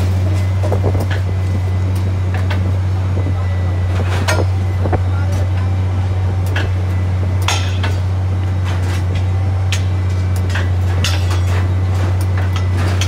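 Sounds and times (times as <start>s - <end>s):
machine low drone: 0.0s - 13.0s
metallic clinks of steel rails: 9.7s - 13.0s.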